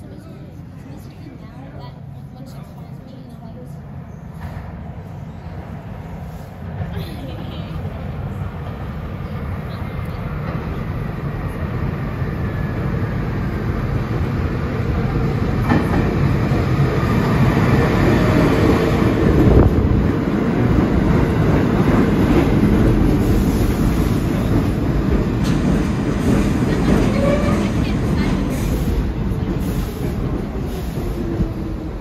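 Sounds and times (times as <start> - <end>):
subway train rumble: 0.0 - 32.0.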